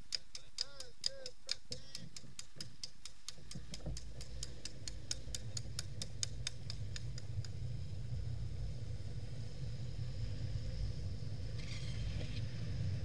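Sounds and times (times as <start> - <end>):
rapid ticking: 0.0 - 7.6
longboard wheels rolling on asphalt: 2.3 - 13.0.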